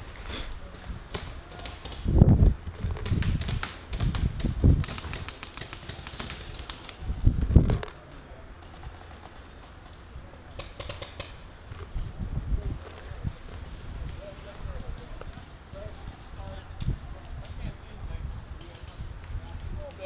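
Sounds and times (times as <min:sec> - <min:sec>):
paintball markers firing: 0:01.1 - 0:02.1, 0:02.9 - 0:07.0, 0:10.4 - 0:11.4.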